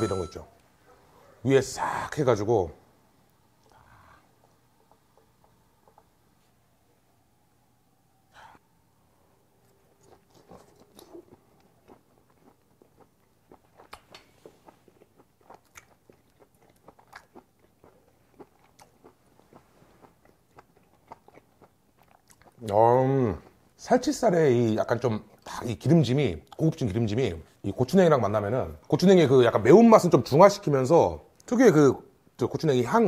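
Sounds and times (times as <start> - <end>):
person chewing wetly: 9.6 - 23.6, 25.2 - 25.5.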